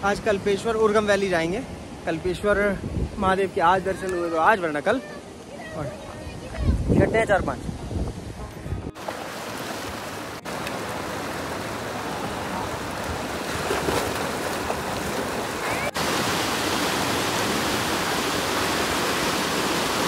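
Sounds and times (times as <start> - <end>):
splashing in shallow water: 9.0 - 20.0
stream rushing over rocks: 9.0 - 20.0.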